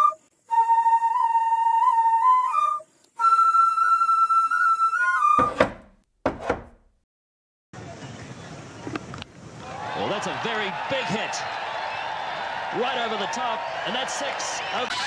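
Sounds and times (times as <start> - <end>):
solo flute melody: 0.0 - 5.6
wooden cabinet doors knocking: 5.4 - 6.9.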